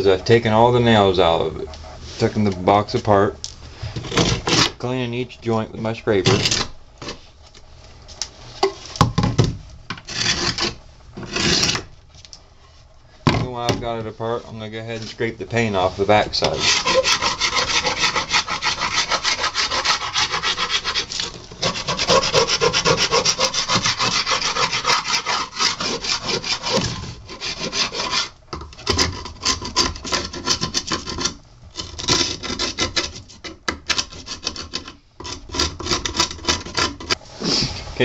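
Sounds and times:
hand scraper scraping wood: 3.9s - 4.8s, 10.0s - 11.9s, 15.8s - 37.6s.

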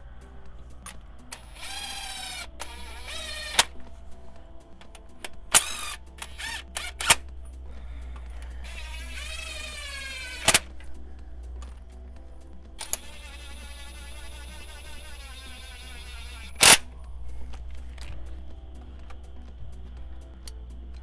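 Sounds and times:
power wrench whining: 1.3s - 3.8s, 5.5s - 7.3s, 8.6s - 10.8s, 12.8s - 16.9s.

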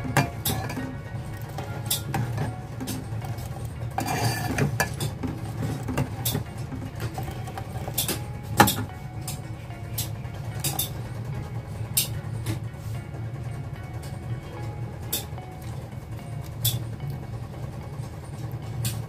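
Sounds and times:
milk tea boiling: 0.0s - 13.4s
gas burner rumble: 0.0s - 19.0s.

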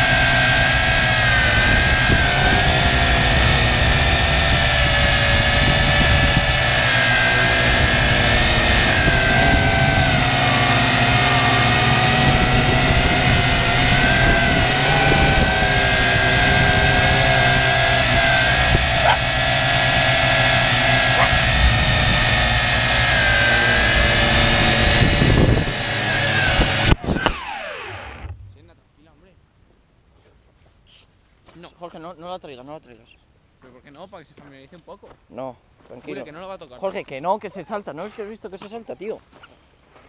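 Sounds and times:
drone motors whining: 0.0s - 28.7s.

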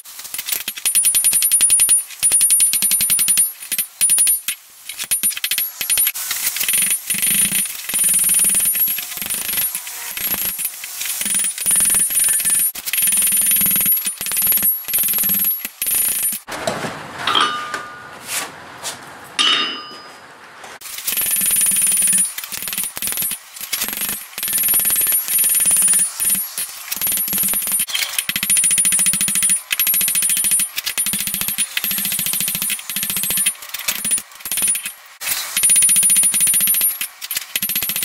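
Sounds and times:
hammer striking steel on anvil: 17.3s - 18.1s, 19.4s - 20.2s.

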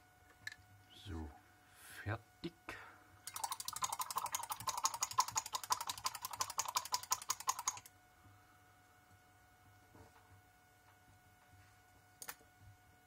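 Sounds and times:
rapid sharp clicks: 3.3s - 7.9s.

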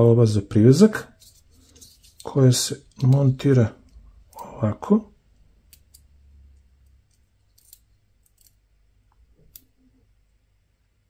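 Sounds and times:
small metal clicks: 6.8s - 8.6s.

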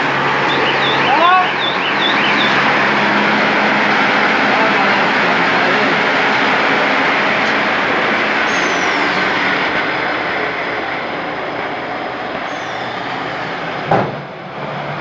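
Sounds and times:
sharp knock: 13.9s - 14.3s.

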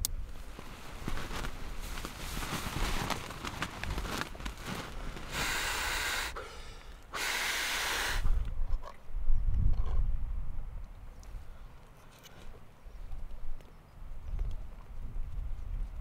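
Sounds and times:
nylon tent fly rustling: 0.2s - 6.3s
breaths blown into inflatable pad: 5.3s - 6.5s, 7.1s - 8.3s.

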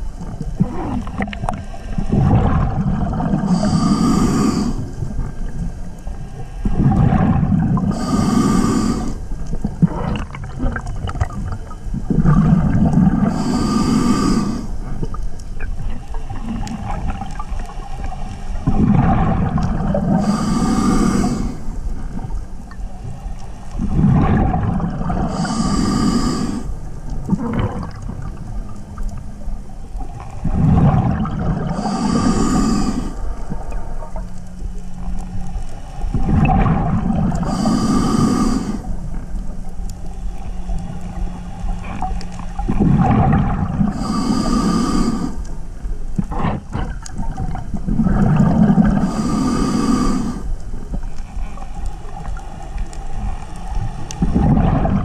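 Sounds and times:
regulator bubbling underwater: 0.0s - 55.0s
regulator breath hiss: 3.4s - 5.1s, 7.8s - 9.3s, 13.3s - 14.9s, 20.1s - 22.0s, 25.2s - 26.8s, 31.7s - 33.5s, 37.2s - 39.2s, 43.9s - 45.6s, 48.9s - 50.6s.

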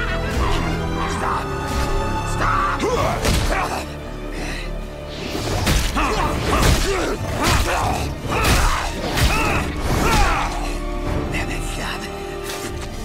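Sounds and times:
dramatic score music: 0.0s - 13.0s
pained cries and grunts: 5.9s - 11.3s.

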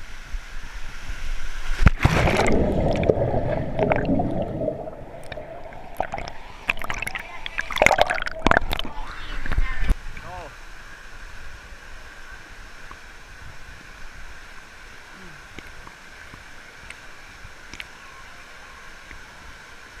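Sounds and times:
pool water rushing: 0.0s - 20.0s
faint clicks: 17.6s - 17.9s.

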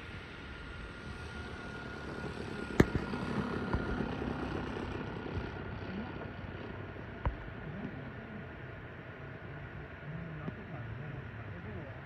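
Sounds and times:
model plane motor whine: 0.0s - 7.2s.

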